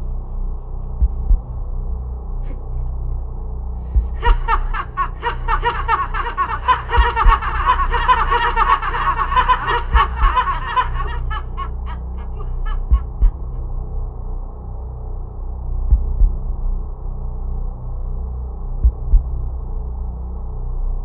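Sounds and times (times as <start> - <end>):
low musical drone: 0.0 - 21.0
boy laughing: 4.2 - 13.6.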